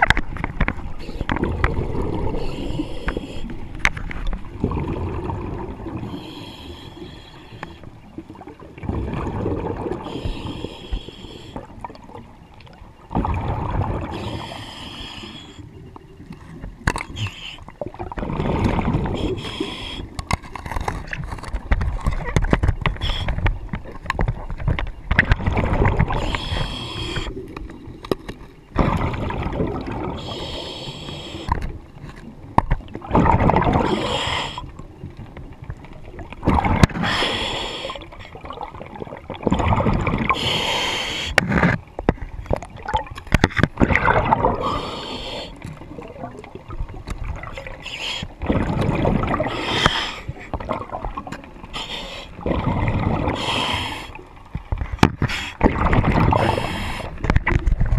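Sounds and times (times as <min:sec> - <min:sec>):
diver breathing through regulator: 0:02.2 - 0:03.8, 0:06.0 - 0:08.0, 0:10.0 - 0:11.7, 0:14.1 - 0:15.7, 0:19.0 - 0:20.3, 0:22.9 - 0:23.5, 0:26.0 - 0:27.5, 0:30.2 - 0:31.6, 0:33.8 - 0:34.7, 0:36.9 - 0:38.2, 0:40.3 - 0:41.5, 0:44.5 - 0:45.7, 0:47.7 - 0:48.4, 0:49.4 - 0:50.6, 0:51.6 - 0:52.5, 0:53.2 - 0:54.2, 0:56.3 - 0:57.3
rush of bubbles: 0:04.5 - 0:06.2, 0:08.4 - 0:10.2, 0:13.1 - 0:14.3, 0:17.8 - 0:19.4, 0:25.3 - 0:26.6, 0:28.8 - 0:30.4, 0:32.9 - 0:34.3, 0:36.2 - 0:37.2, 0:37.9 - 0:40.5, 0:43.8 - 0:45.0, 0:48.4 - 0:49.9, 0:50.5 - 0:51.4, 0:52.4 - 0:53.9, 0:55.6 - 0:57.9.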